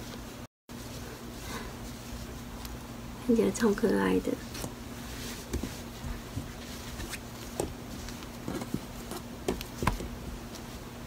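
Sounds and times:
faint steady hum: 0:00.0 - 0:11.0
hands patting and smoothing yarn: 0:04.4 - 0:10.8.

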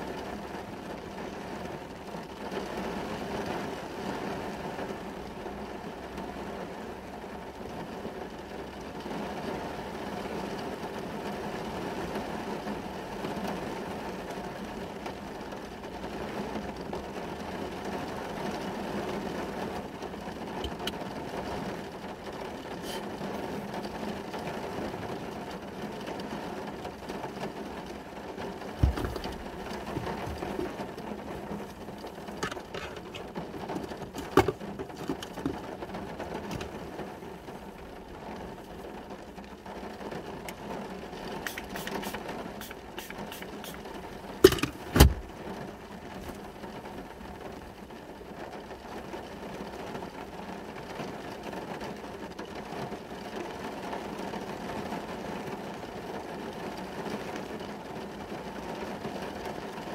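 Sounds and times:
rain on a car: 0:00.0 - 0:59.9
sharp thump: 0:28.8 - 0:29.4.

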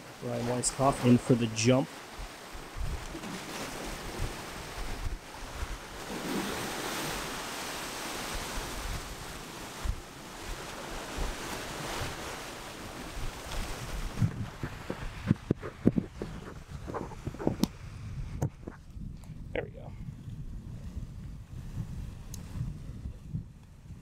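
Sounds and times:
ocean surf washing against rocks: 0:00.0 - 0:18.6
wind buffeting microphone: 0:00.0 - 0:24.0.

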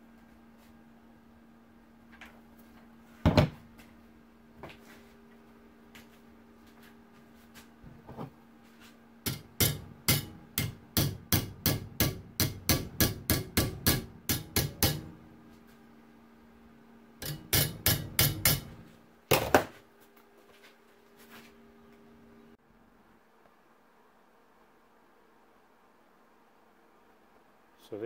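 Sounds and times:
hammer striking sheet steel: 0:09.3 - 0:15.2, 0:17.2 - 0:18.9.

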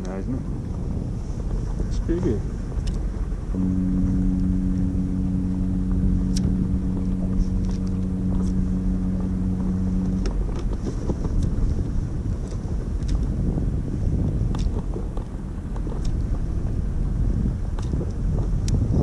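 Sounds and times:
steady low rumble: 0:00.0 - 0:19.0
ship's horn blast: 0:03.3 - 0:13.0.

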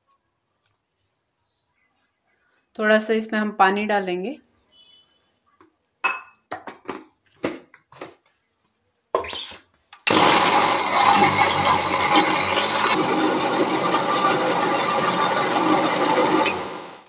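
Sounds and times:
mixer grinder running: 0:10.1 - 0:17.0.

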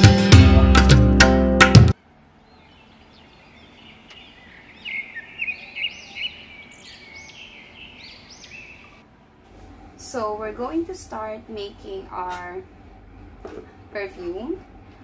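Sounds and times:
small bird chirping: 0:02.4 - 0:09.0.

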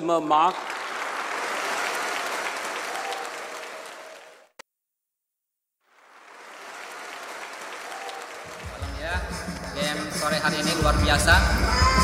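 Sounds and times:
audience applauding: 0:00.0 - 0:04.5, 0:05.9 - 0:10.0.

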